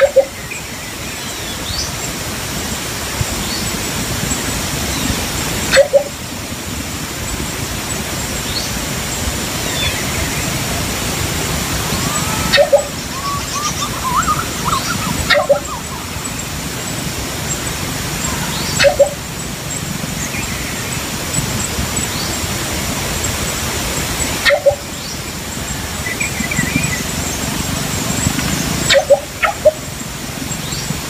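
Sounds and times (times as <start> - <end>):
steady outdoor hiss: 0.0 - 31.0
bird low calls: 3.2 - 6.3, 9.5 - 22.4, 24.2 - 31.0
thin high chirps: 11.9 - 19.2.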